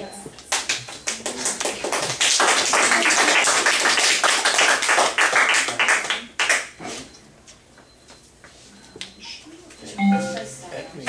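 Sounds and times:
group applauding: 0.4s - 6.8s.

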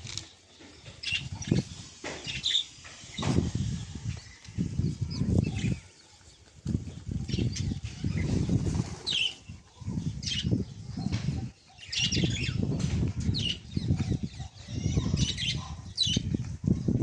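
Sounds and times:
pigeons flapping wings: 8.3s - 9.4s.

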